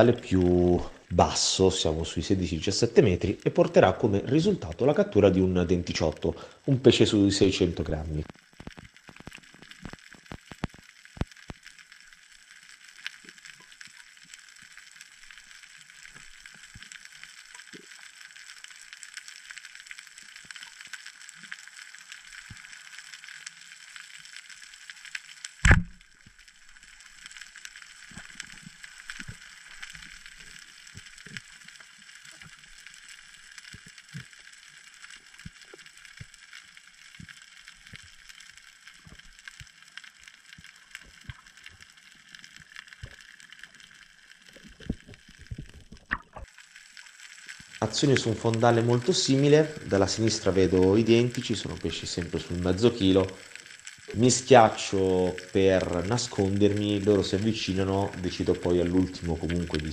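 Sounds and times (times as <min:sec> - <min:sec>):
underwater hiss with tiny clicks: 0:08.3 - 0:48.3
speargun firing crack: 0:25.6 - 0:26.0.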